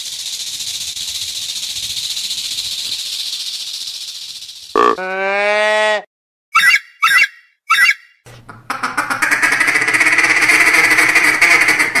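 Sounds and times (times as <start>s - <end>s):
short animal calls: 4.8s - 8.0s.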